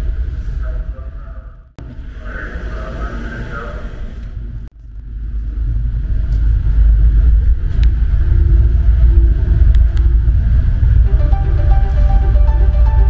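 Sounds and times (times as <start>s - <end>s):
low engine rumble: 0.0s - 13.0s.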